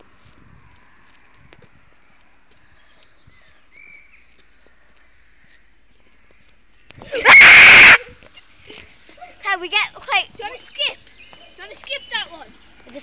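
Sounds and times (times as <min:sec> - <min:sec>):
footsteps on pavement: 0:00.0 - 0:07.1, 0:09.9 - 0:13.0.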